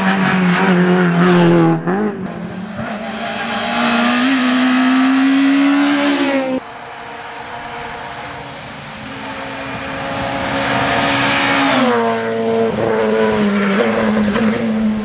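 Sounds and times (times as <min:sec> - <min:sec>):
car accelerating with rising engine: 0:00.0 - 0:06.6
rally car engine at full throttle: 0:00.0 - 0:15.0.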